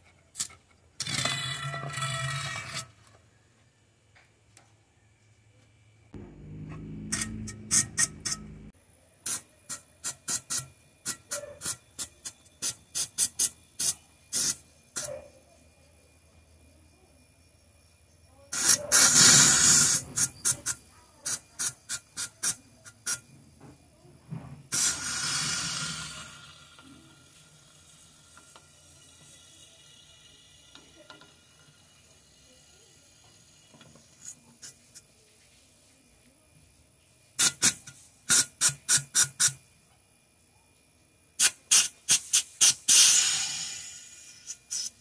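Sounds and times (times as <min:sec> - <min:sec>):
compressed air hissing: 0:09.2 - 0:15.1, 0:18.5 - 0:23.3, 0:24.7 - 0:35.0, 0:37.4 - 0:39.6, 0:41.4 - 0:45.0.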